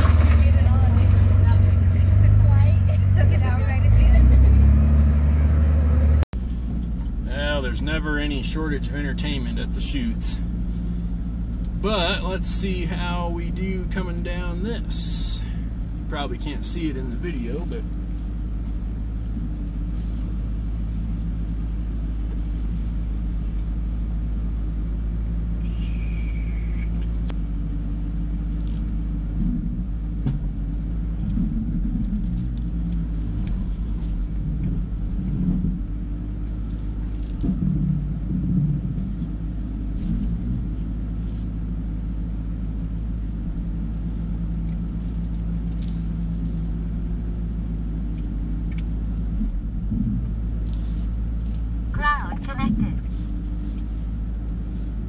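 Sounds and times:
truck rumbling and knocking over rocks: 0.0 - 7.5, 28.6 - 40.8, 49.2 - 50.4
truck engine running low: 0.0 - 55.0.

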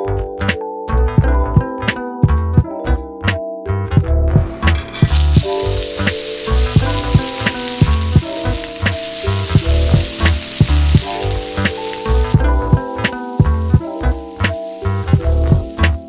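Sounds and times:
background music with steady beat: 0.0 - 16.0
meat sizzling in a skillet: 4.7 - 16.0.

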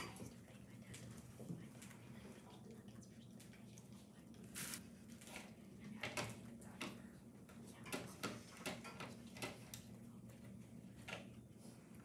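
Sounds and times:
faint low hum: 0.0 - 12.0
paintbrush scrubbing on paper: 4.5 - 4.8.

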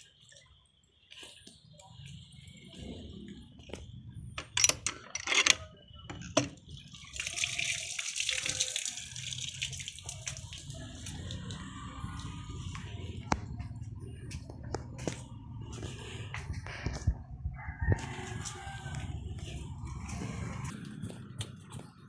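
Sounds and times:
water running and splashing: 6.6 - 12.6.

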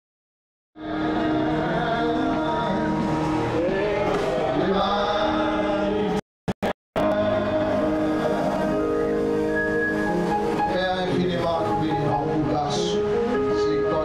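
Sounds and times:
man singing into a microphone: 0.8 - 6.2, 10.6 - 14.0.

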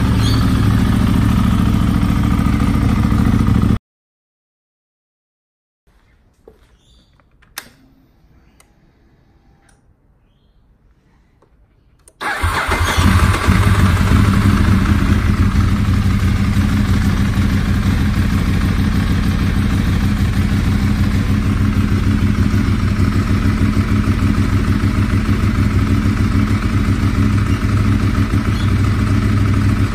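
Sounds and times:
motorcycle engine starting and idling: 0.0 - 3.8, 12.0 - 29.9.

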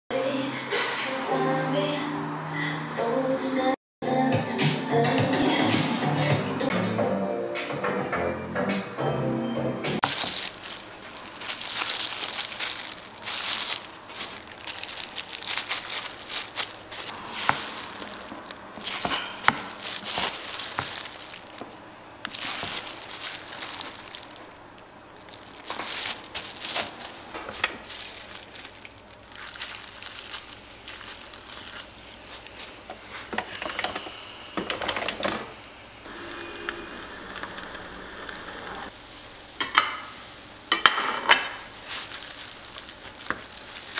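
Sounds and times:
plastic gloves crinkling: 10.0 - 33.7, 38.9 - 43.9.

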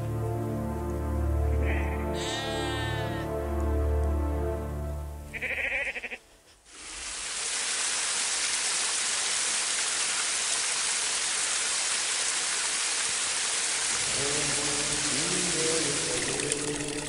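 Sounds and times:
goat bleating: 1.5 - 3.3, 5.3 - 6.4
waterfall rushing: 6.7 - 17.0.

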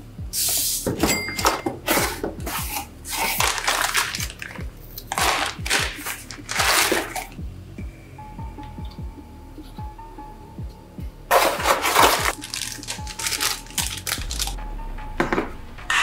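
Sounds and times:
background music with low beat: 0.0 - 16.0
plastic bag rustling: 1.9 - 7.4, 11.3 - 14.6.

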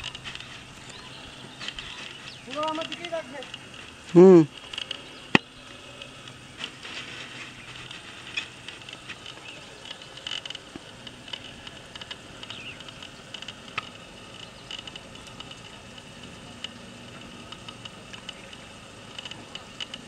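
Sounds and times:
high chirping: 0.7 - 2.8.

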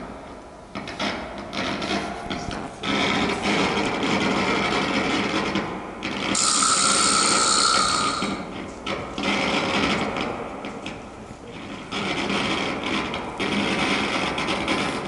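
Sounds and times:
harsh hissy held tone: 6.4 - 8.6
improvised guitar saxophone and drums: 6.4 - 8.6.

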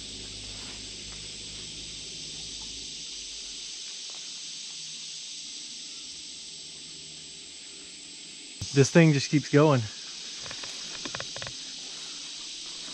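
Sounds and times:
low rumble: 0.0 - 3.8
high-pitched insect chorus: 0.0 - 12.9.

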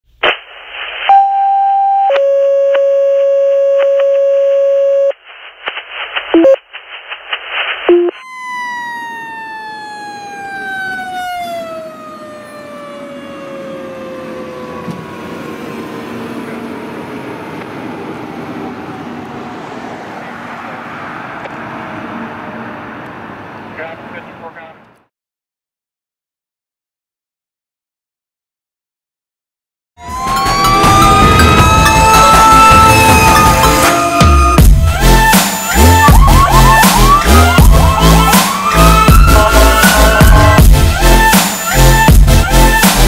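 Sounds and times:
radio paging tones: 0.9 - 9.2
fire engine siren: 1.1 - 5.1, 8.1 - 23.7, 30.0 - 43.0
crackly radio transmission: 4.8 - 8.2
engine and tyre noise: 8.4 - 25.1.

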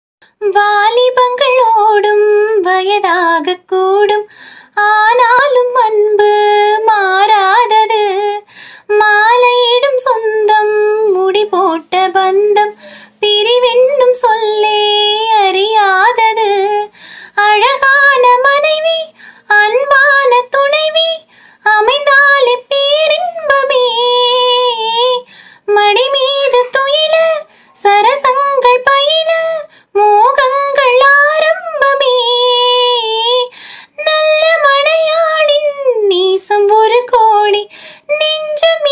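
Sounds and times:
high-pitched voice singing: 25.8 - 29.3.

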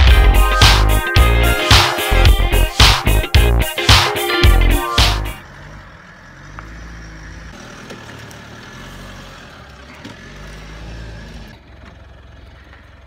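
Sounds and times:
car engine running at low revs: 5.4 - 13.0.

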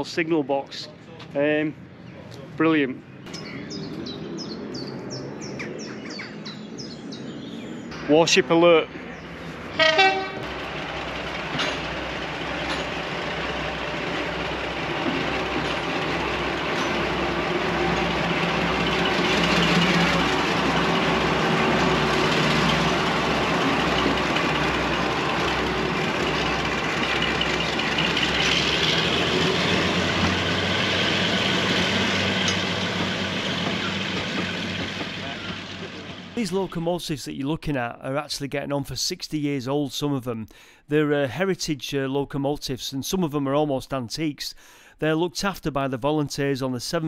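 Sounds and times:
diesel locomotive engine throb: 6.6 - 36.8
coaches rolling over rails: 7.8 - 36.8.

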